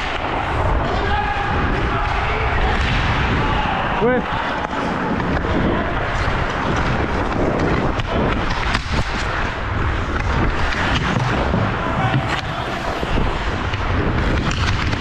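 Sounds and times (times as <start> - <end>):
wind rumble on microphone: 0.0 - 15.0
skate blades scraping ice: 4.4 - 15.0
stick clacking on puck: 13.7 - 15.0.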